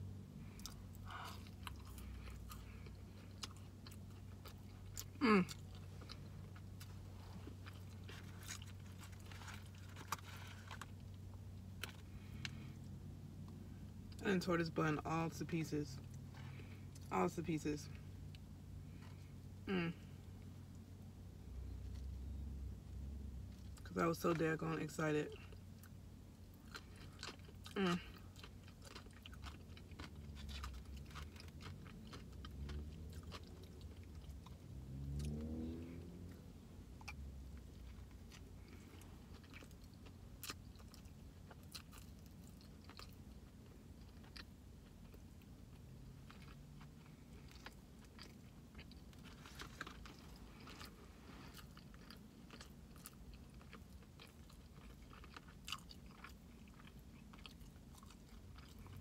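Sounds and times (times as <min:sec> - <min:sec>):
person chewing with wet smacking: 0:00.4 - 0:12.6, 0:25.3 - 0:59.0.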